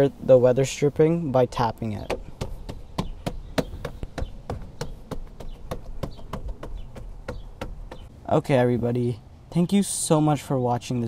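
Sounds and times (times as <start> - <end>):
hand tapping rubber seal: 2.0 - 8.1.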